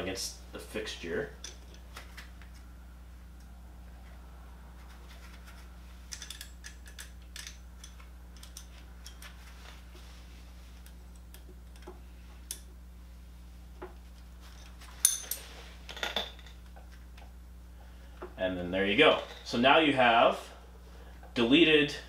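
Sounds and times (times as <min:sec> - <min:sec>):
metal wrenches clinking: 0:06.1 - 0:09.4, 0:14.5 - 0:16.6.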